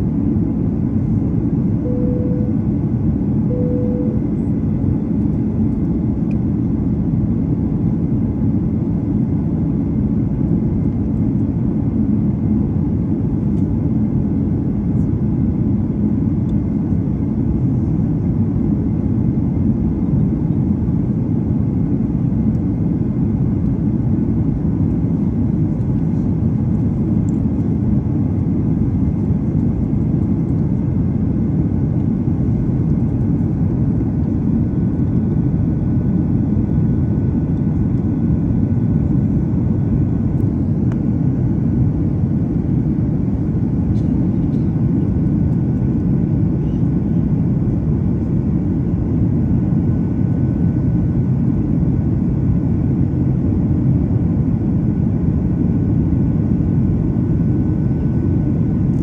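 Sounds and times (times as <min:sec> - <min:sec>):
jet engine cabin rumble: 0:00.0 - 0:59.0
short beep: 0:01.8 - 0:02.6, 0:03.5 - 0:04.4.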